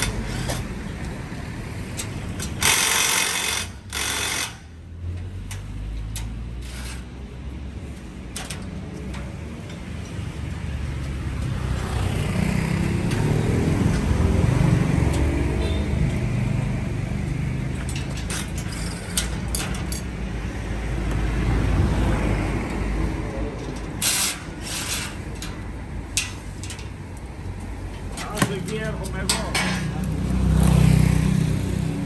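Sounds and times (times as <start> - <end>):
metallic knocks and clanks: 17.7 - 20.2, 23.5 - 30.0.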